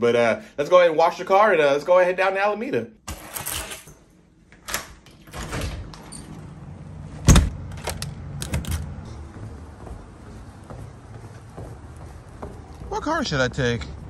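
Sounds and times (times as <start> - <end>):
door shutting with a thump: 7.2 - 7.6.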